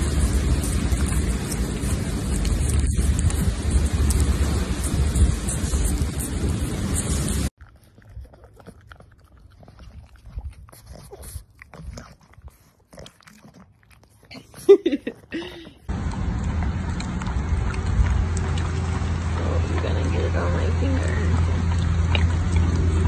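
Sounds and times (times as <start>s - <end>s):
low rumble: 0.0s - 7.5s, 15.9s - 23.0s
dogs licking wet smacks: 0.0s - 23.0s.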